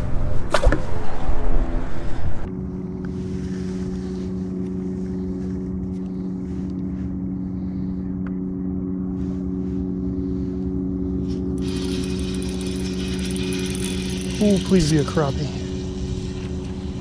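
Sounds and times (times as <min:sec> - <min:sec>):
low rumble: 0:00.0 - 0:17.0
electric motor humming: 0:11.3 - 0:17.0.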